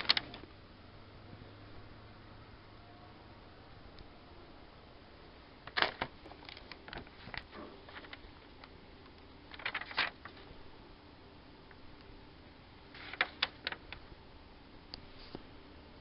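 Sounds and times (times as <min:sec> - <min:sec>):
paper pages rustling: 0:00.0 - 0:00.5, 0:05.7 - 0:08.7, 0:09.5 - 0:10.5, 0:12.9 - 0:14.0.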